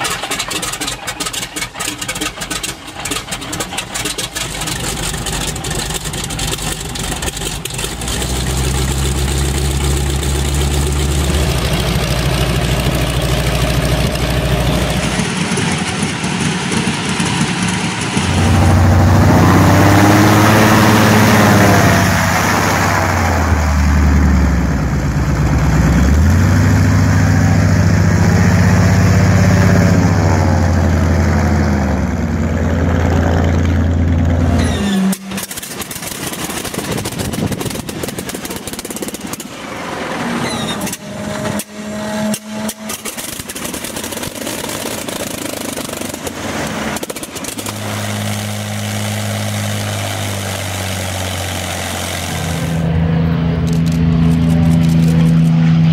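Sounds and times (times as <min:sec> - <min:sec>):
airboat engine revving: 0:00.0 - 0:55.9
radial aircraft engine running: 0:00.0 - 0:55.9.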